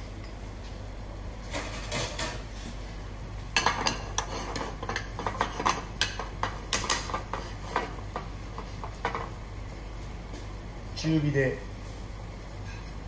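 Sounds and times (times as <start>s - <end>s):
metal spoon scraping frying pan: 3.6s - 8.2s.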